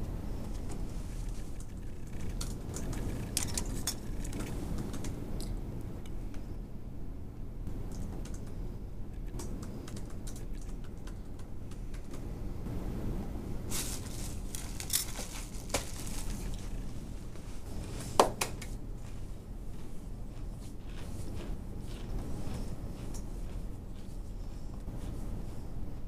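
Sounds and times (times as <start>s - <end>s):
steady low hum: 0.0s - 26.0s
small clicks and ticks: 0.6s - 6.4s, 7.9s - 12.3s.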